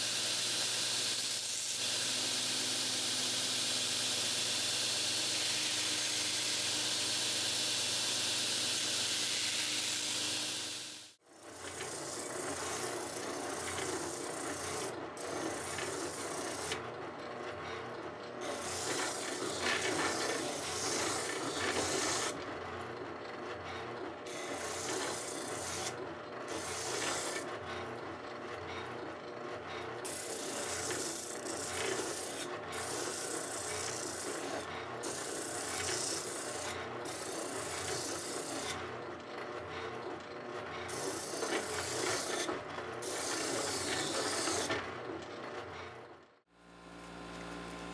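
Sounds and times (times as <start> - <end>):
spindle sander running: 0.0 - 16.8.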